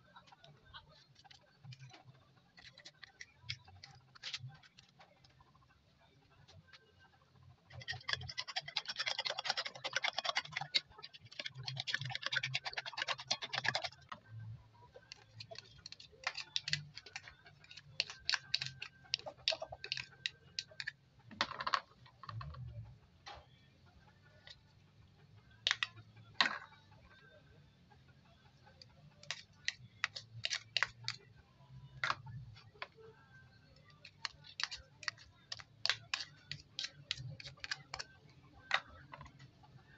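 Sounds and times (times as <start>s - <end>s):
spoon beating eggs in glass dish: 2.6s - 4.5s, 7.7s - 14.3s, 15.0s - 20.9s, 25.6s - 26.0s, 29.2s - 31.2s, 33.7s - 39.2s
spoon tapping plastic bowl: 15.1s - 21.8s, 25.7s - 26.6s, 33.9s - 38.0s.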